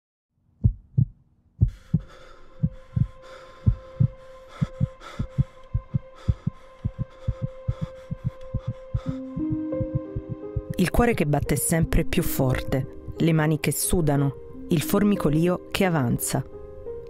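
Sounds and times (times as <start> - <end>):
heartbeat thumping: 0.6 - 11.0.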